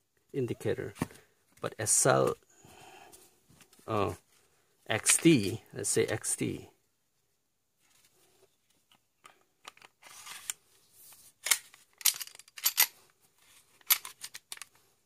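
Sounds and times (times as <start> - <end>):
pistol slide scraping: 10.0 - 10.6.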